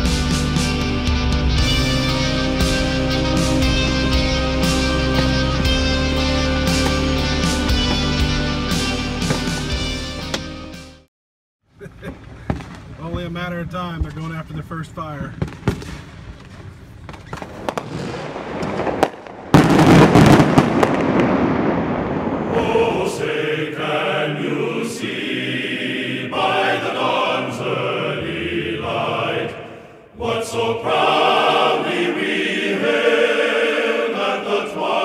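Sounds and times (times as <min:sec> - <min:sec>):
choral chanting music: 0:00.0 - 0:10.6, 0:22.1 - 0:35.0
fireworks popping and crackling: 0:12.1 - 0:13.3, 0:15.2 - 0:22.2
loud firework boom: 0:17.3 - 0:22.8.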